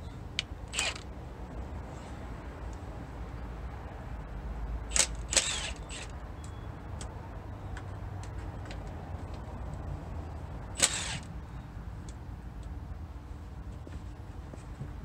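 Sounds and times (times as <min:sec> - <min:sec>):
cordless power tool: 0:00.7 - 0:01.0, 0:04.9 - 0:06.1, 0:10.8 - 0:11.3.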